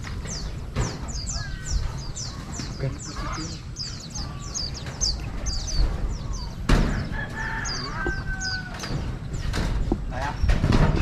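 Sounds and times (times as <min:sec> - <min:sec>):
small birds chirping: 0:00.0 - 0:11.0
rooster crowing: 0:06.9 - 0:09.0.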